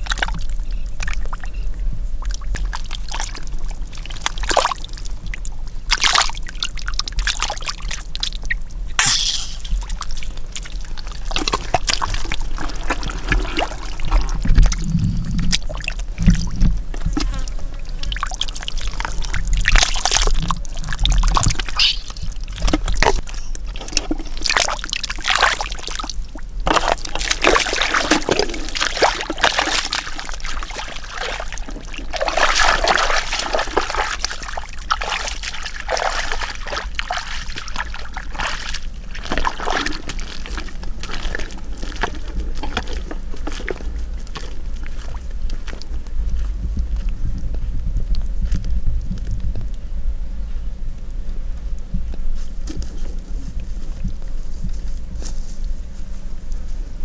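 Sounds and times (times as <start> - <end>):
mud squelching and water sloshing: 0.0 - 1.6, 2.2 - 47.1.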